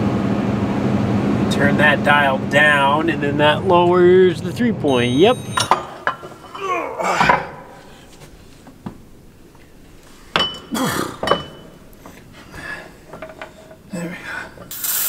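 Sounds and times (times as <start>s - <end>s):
metal hitch hardware clanking: 4.8s - 7.8s, 10.3s - 12.3s.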